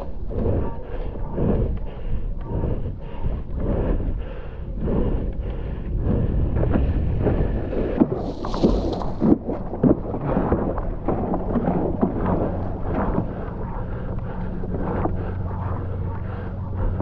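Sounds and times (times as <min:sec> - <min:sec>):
wind buffeting microphone: 0:00.0 - 0:17.0
water splashing against paddleboard: 0:06.6 - 0:16.0.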